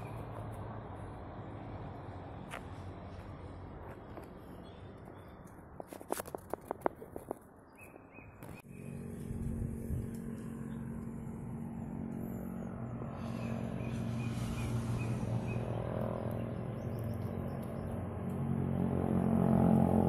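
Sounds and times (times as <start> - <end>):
low engine hum: 8.4 - 20.0.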